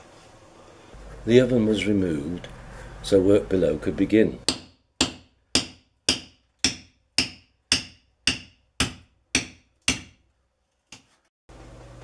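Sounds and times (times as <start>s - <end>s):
hammer striking chisel: 4.4s - 10.3s.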